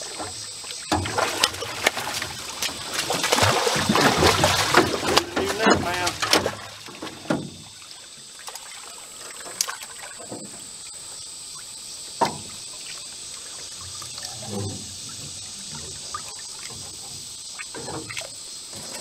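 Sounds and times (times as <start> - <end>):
water splashing and trickling: 0.0 - 19.0
fish thrashing in a net: 0.2 - 10.2.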